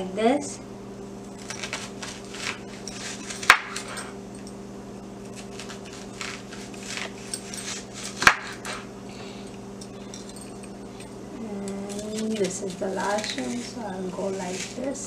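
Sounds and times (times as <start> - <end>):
low hum: 0.0 - 15.0
knife slicing onion: 1.4 - 4.0, 5.2 - 8.9, 11.4 - 15.0.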